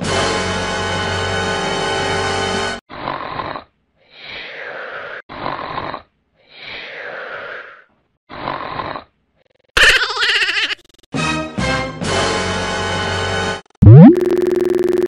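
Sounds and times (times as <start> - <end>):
cartoon snoring: 2.9 - 3.7, 4.3 - 9.7.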